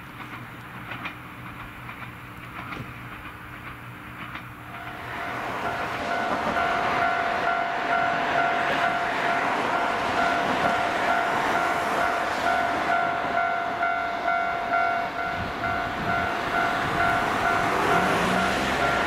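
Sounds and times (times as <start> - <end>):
electric train approaching: 0.0 - 19.0
higher bell: 4.7 - 19.0
level crossing bell dinging: 12.0 - 19.0.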